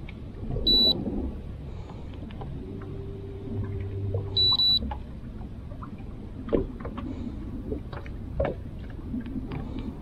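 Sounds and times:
low steady hum: 0:00.0 - 0:10.0
short high electronic beeps: 0:04.4 - 0:04.8.

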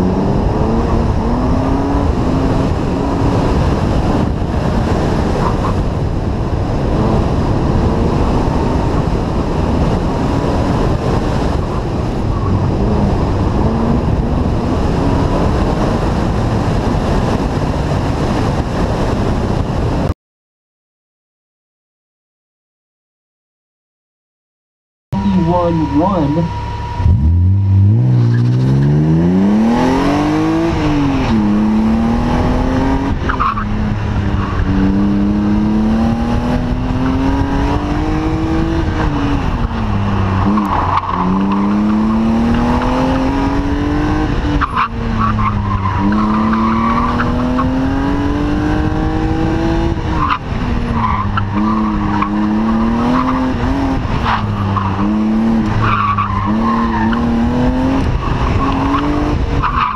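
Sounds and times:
car engine revving hard: 0:00.0 - 0:17.9, 0:25.2 - 0:59.9
tires squealing: 0:11.5 - 0:15.0, 0:25.2 - 0:49.3, 0:49.9 - 0:59.9.

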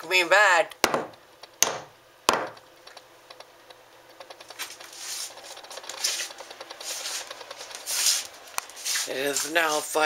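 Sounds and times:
sharp knocks on wood: 0:00.8 - 0:02.6
faint scratching and rubbing: 0:04.5 - 0:10.0.

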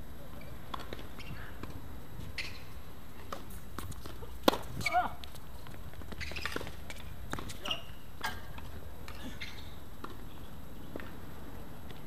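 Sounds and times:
shoe squeaks: 0:01.2 - 0:01.4, 0:02.3 - 0:02.7, 0:06.1 - 0:06.9, 0:07.5 - 0:08.0, 0:09.2 - 0:09.8
tennis ball knocks: 0:04.4 - 0:04.7.

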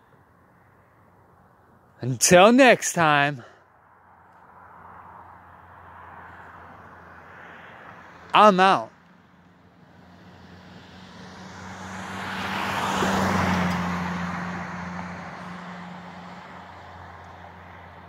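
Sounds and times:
car passing by: 0:04.3 - 0:08.3, 0:09.0 - 0:18.0.

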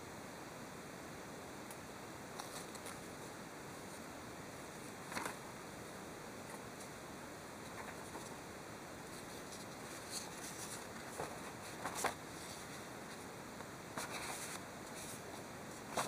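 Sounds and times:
faint steady hiss: 0:00.0 - 0:16.0
paper rustling and crackling: 0:02.4 - 0:03.1, 0:04.7 - 0:05.5, 0:07.6 - 0:08.4, 0:09.0 - 0:16.0.

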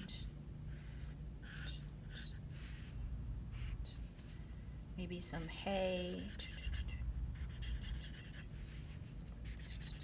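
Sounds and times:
marker scratching on paper: 0:00.7 - 0:03.0, 0:05.4 - 0:10.0.

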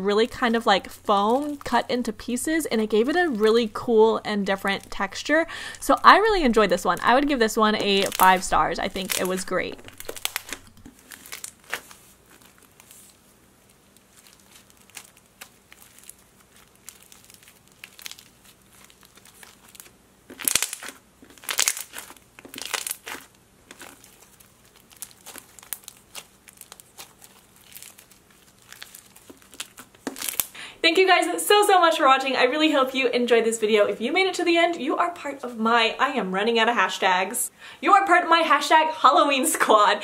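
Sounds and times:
slime squeezed with crackling pops: 0:05.6 - 0:12.9, 0:14.0 - 0:30.5.

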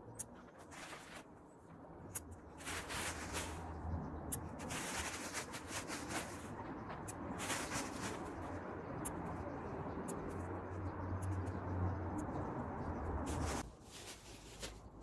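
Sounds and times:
plastic garbage bag rustling: 0:04.6 - 0:06.6, 0:07.3 - 0:08.3, 0:13.3 - 0:15.0.

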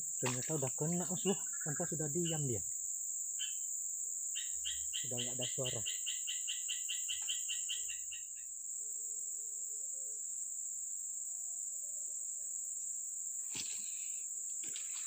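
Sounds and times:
insects droning: 0:00.0 - 0:15.0
rustles in wet undergrowth: 0:00.2 - 0:01.0, 0:13.5 - 0:15.0.

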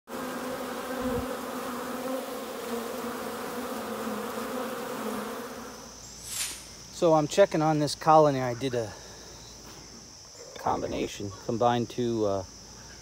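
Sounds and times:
bees buzzing: 0:00.1 - 0:06.9.

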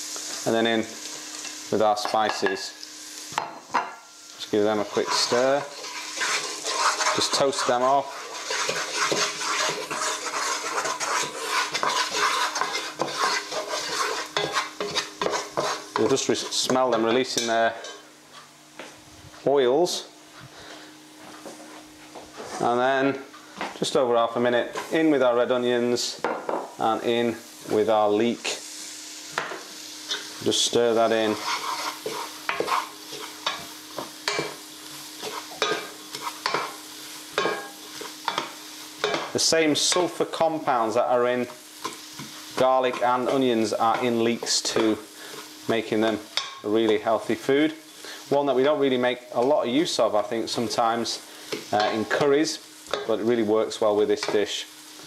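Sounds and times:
spices sizzling in oil: 0:00.0 - 0:55.0
wooden spatula scraping a pot: 0:04.6 - 0:17.0, 0:30.1 - 0:40.6, 0:41.8 - 0:45.8.

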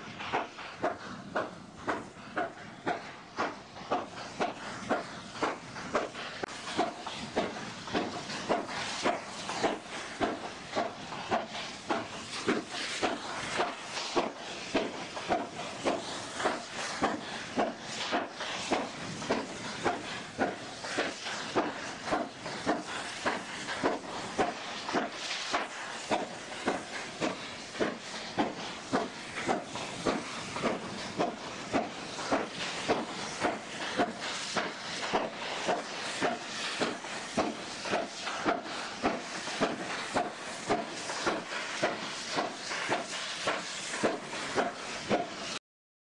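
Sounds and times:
steam hiss: 0:00.0 - 0:45.6
steam locomotive chuffing: 0:00.0 - 0:45.6.

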